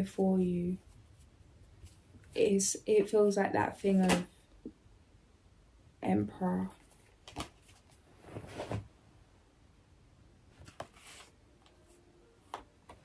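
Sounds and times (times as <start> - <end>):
cards rustling: 6.8 - 8.8, 10.6 - 13.0.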